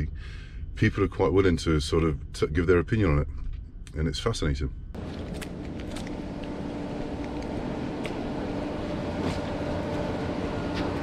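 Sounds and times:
lorry engine and road rumble: 4.9s - 11.0s.

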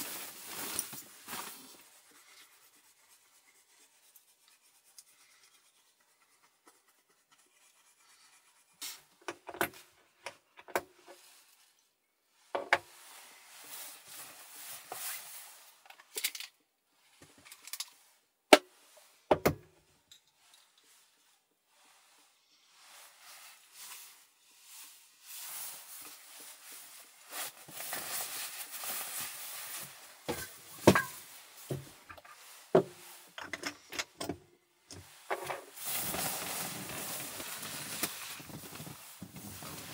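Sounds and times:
rustling: 0.0s - 4.5s, 20.4s - 33.4s, 35.0s - 39.9s.

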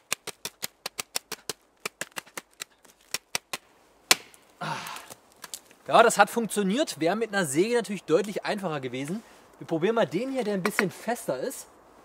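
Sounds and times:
knife chopping a branch: 0.0s - 4.4s.

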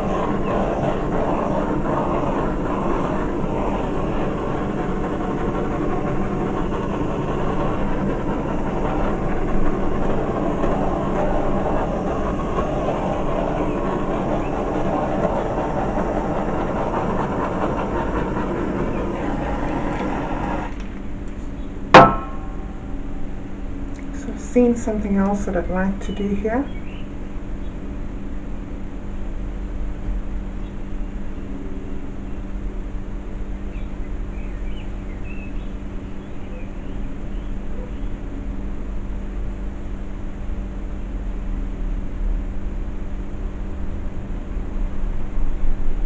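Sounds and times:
torch flame hissing: 0.0s - 26.5s.

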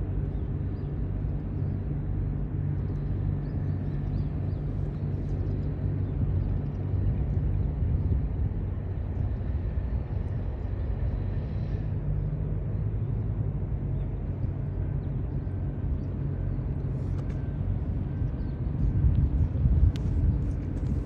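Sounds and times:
ferry engine drone: 0.0s - 21.0s
wind noise: 6.0s - 11.4s, 16.9s - 21.0s.

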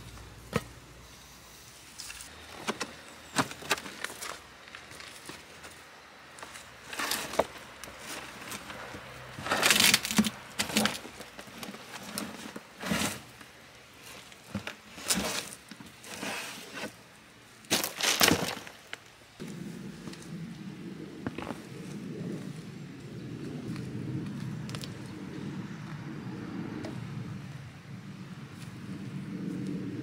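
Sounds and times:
wooden boards cracking and breaking: 17.7s - 18.8s.

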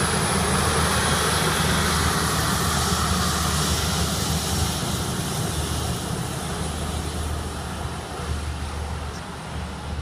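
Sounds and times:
airliner engines running: 0.0s - 10.0s.

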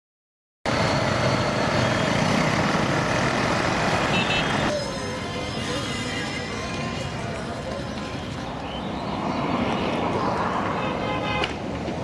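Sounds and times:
busy road traffic: 0.7s - 12.0s
quieter street sound: 0.7s - 12.0s.

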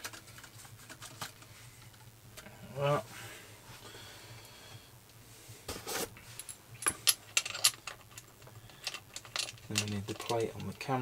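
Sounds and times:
small hard parts clattering: 6.4s - 11.0s.

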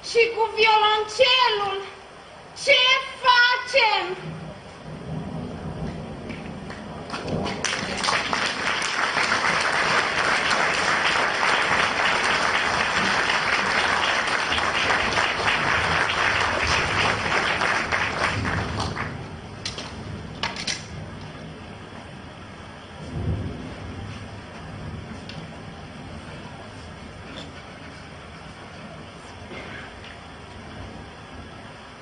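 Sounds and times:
audience applauding: 6.4s - 19.3s.

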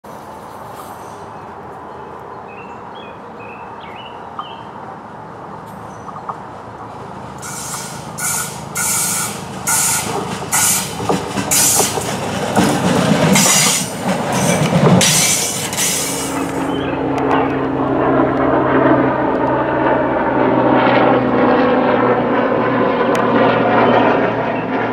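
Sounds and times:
light-rail railcar passing: 0.0s - 20.3s
low engine rumble: 5.1s - 24.9s
wheels squealing on curved track: 7.4s - 12.1s.

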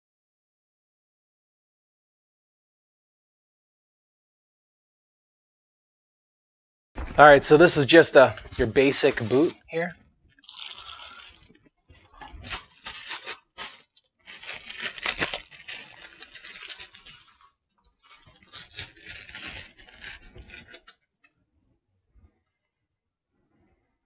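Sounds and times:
plastic bag crinkling: 7.6s - 21.0s.

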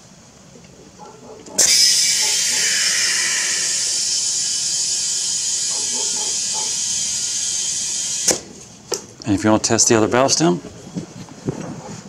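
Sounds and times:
compressed air hissing: 1.6s - 8.9s.

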